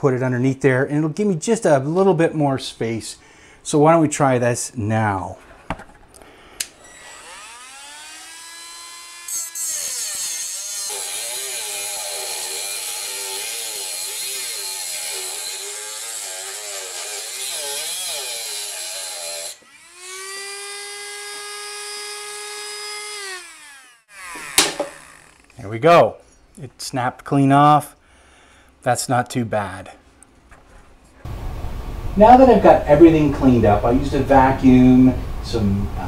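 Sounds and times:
rotary tool cutting metal: 6.8s - 25.6s.

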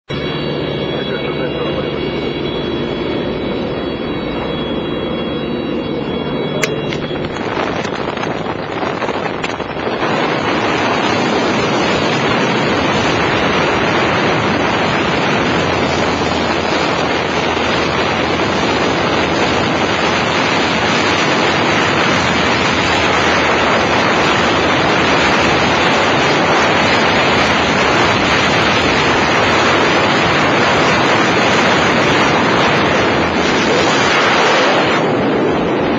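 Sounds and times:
airplane engine droning: 0.1s - 35.9s
wind rushing on microphone: 0.1s - 35.9s.

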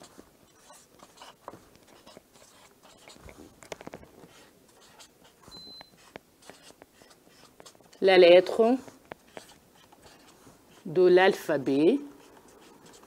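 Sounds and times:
marker scratching on paper: 0.0s - 13.0s
high squeak: 5.4s - 6.0s.

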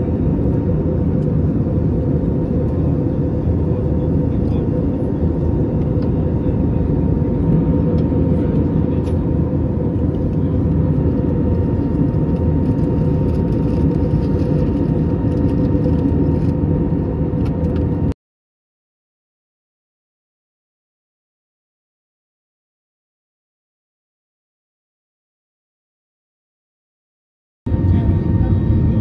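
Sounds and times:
airplane cabin rumble: 0.0s - 18.2s, 27.7s - 29.0s.

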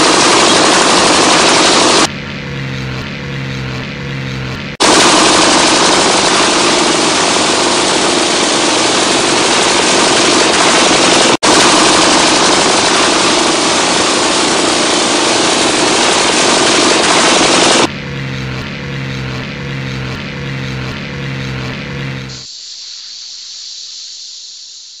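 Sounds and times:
jackhammer hammering: 0.0s - 2.1s, 4.7s - 17.9s
rhythmic mechanical sound: 0.0s - 24.7s
steady hiss: 22.3s - 25.0s.

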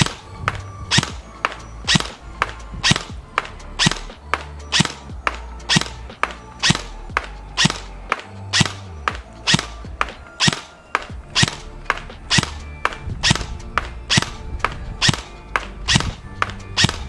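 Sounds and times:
airsoft gun single shots: 0.9s - 2.2s, 2.8s - 6.0s, 6.6s - 9.8s, 10.4s - 14.4s, 15.0s - 16.2s, 16.8s - 17.0s.

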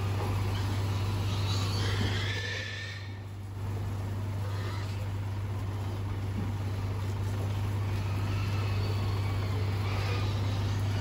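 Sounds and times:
pigs squealing: 0.0s - 3.4s, 4.3s - 5.4s, 7.6s - 11.0s.

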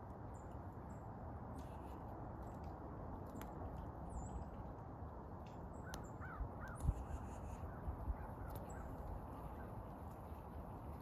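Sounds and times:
outdoor background noise: 0.0s - 11.0s
distant bird calls: 5.4s - 11.0s.

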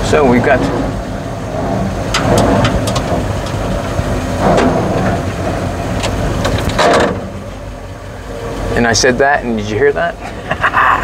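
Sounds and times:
clunks and rattles: 0.0s - 8.0s
truck engine running: 0.0s - 11.0s.

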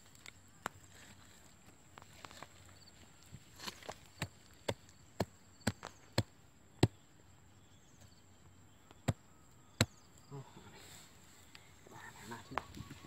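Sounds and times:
digging tool striking dry soil: 3.5s - 7.0s, 8.9s - 9.2s, 9.8s - 10.0s.

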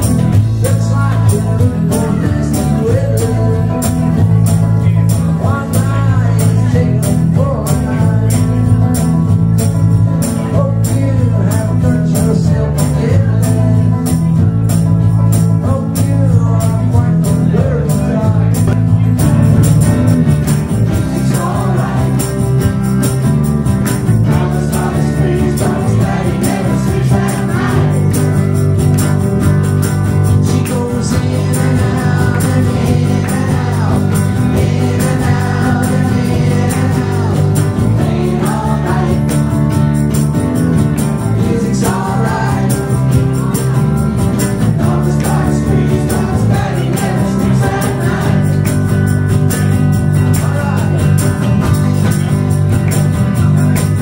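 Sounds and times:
man singing into microphone: 0.0s - 9.4s, 10.3s - 14.4s, 15.5s - 18.7s, 30.3s - 39.6s, 41.3s - 43.3s, 44.6s - 48.6s, 50.2s - 51.2s
bass-heavy band accompaniment: 0.0s - 54.0s
electric guitar: 0.0s - 54.0s.

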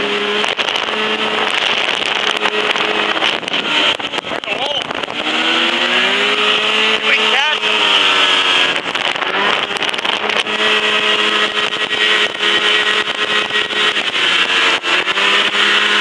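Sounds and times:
snowmobile engine running: 0.0s - 16.0s.

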